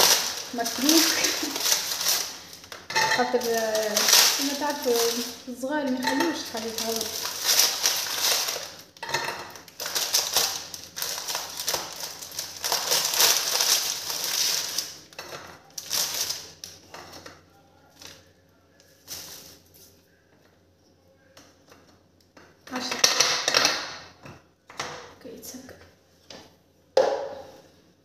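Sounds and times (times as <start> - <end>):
plastic packet rustling: 0.0 - 16.8.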